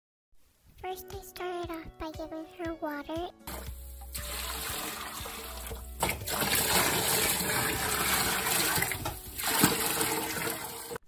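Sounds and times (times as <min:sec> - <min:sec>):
water pouring and splashing: 0:03.5 - 0:11.0.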